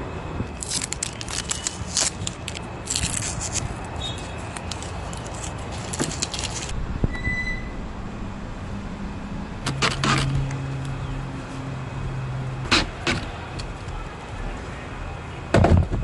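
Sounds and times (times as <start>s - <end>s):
steady low hum: 2.1s - 13.0s.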